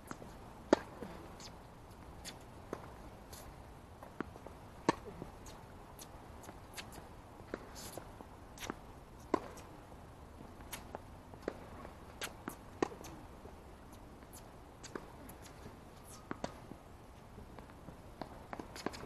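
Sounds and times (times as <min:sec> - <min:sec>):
tennis ball bouncing: 0:00.1 - 0:01.5, 0:04.0 - 0:05.1, 0:08.6 - 0:09.7, 0:14.3 - 0:16.8.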